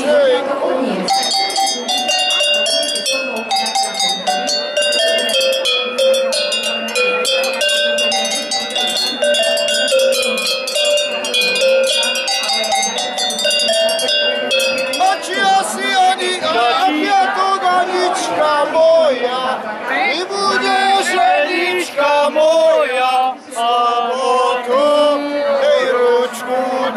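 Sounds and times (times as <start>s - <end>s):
cowbells ringing a tune: 1.0s - 16.5s.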